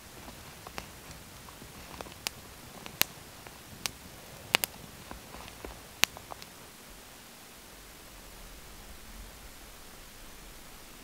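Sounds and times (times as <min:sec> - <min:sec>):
campfire crackling and popping: 0:00.0 - 0:07.1.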